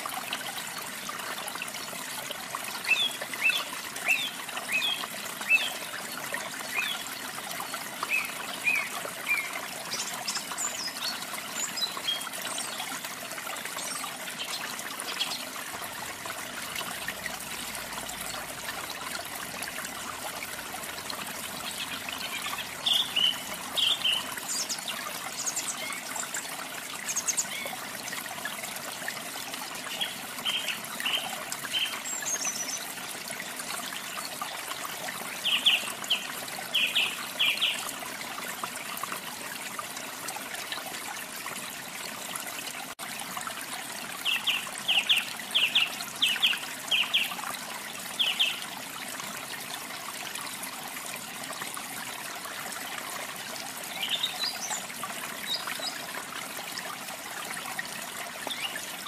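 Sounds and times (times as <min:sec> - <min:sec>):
waterfall: 0:00.0 - 0:59.0.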